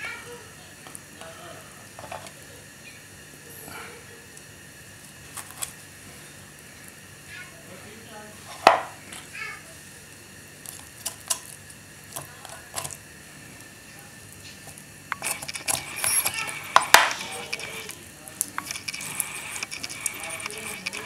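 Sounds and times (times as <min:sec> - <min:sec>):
knife scraping chicken bone: 0:15.1 - 0:18.0, 0:18.6 - 0:21.0.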